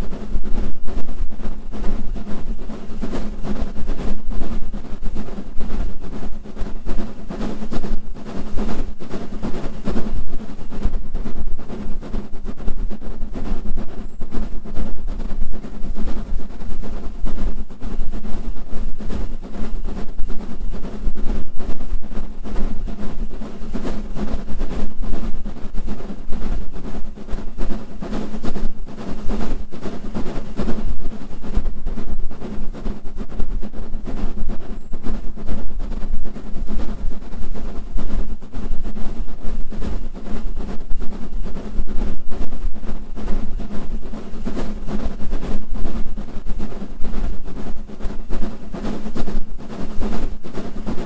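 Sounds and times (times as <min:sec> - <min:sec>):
wind buffeting the microphone: 0:00.0 - 0:51.0.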